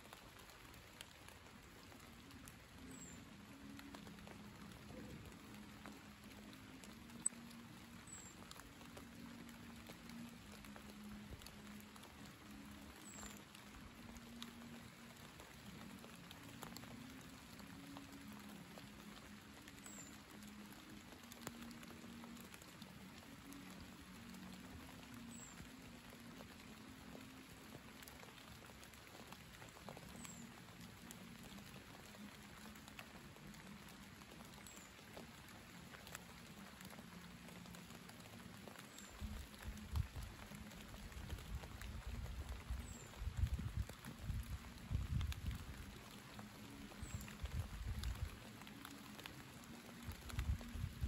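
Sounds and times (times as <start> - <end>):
light rain pattering: 0.0 - 51.0
rain drop ticks: 0.0 - 51.0
wind buffeting microphone: 41.4 - 45.8.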